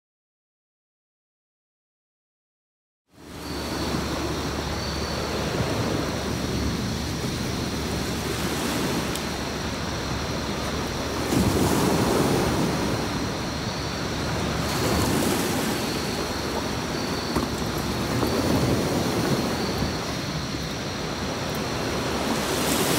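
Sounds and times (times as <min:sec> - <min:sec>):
sea waves washing onto beach: 0:03.2 - 0:22.9.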